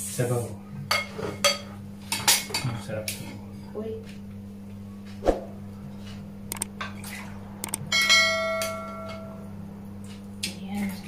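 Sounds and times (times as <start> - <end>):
glass bowl ringing: 7.9 - 9.4.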